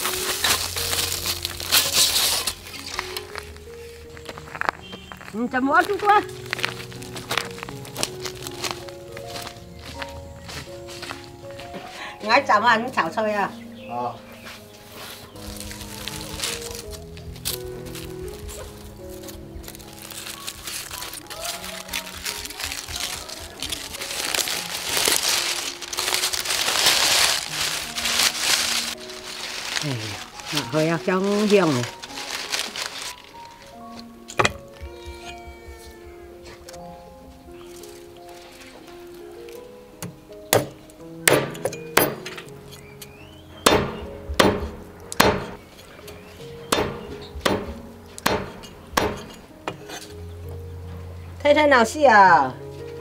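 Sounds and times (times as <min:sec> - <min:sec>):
aluminium foil crinkling: 0:00.0 - 0:10.2, 0:14.9 - 0:41.0
cleaver chopping on wooden block: 0:40.0 - 0:42.2, 0:43.7 - 0:45.6, 0:46.7 - 0:49.8.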